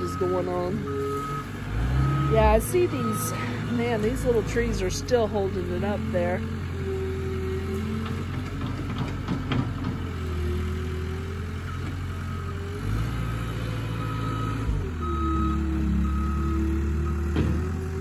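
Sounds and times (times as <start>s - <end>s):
backup alarm beeping: 0.0s - 4.9s, 14.0s - 17.4s
loader engine running: 0.0s - 18.0s.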